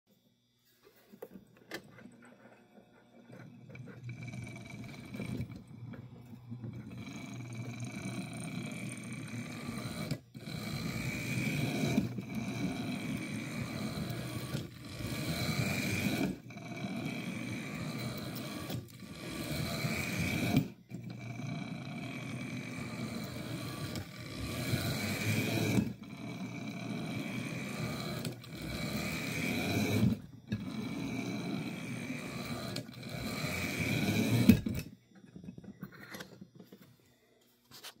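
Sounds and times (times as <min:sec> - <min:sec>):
model train motor whirring: 0:01.7 - 0:34.9.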